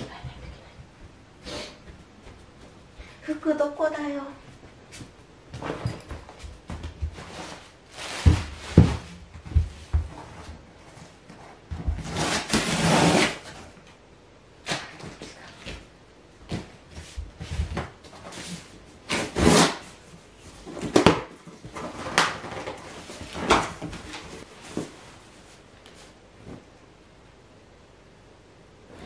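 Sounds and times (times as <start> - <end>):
cardboard boxes rustling: 5.6 - 12.6.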